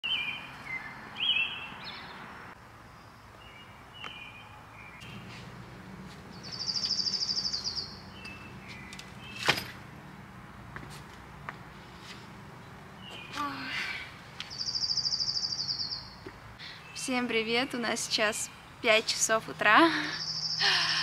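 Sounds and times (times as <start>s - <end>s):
songbirds whistling: 0.0s - 2.2s, 6.3s - 9.6s, 14.4s - 17.1s, 20.0s - 21.0s
fast high bird trill: 6.4s - 8.4s.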